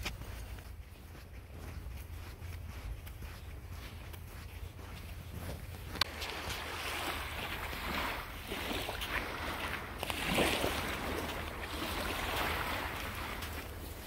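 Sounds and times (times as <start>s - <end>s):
waves washing onto beach: 5.9s - 14.0s.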